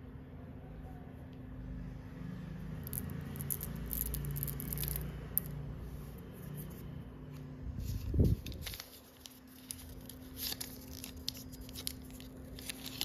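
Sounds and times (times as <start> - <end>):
low steady hum: 0.0 - 13.0
candies clicking together: 2.8 - 5.5.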